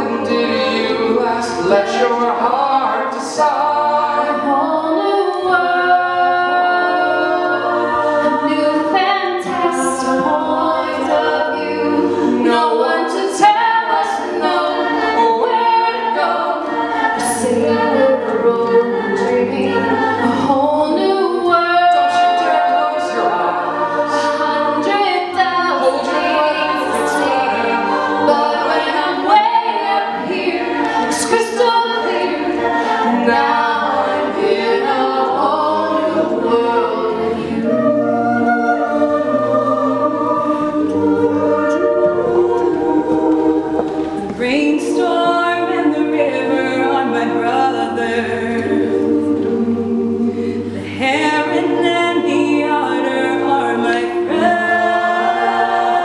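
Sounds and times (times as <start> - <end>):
sung backing harmonies: 0.0 - 56.0.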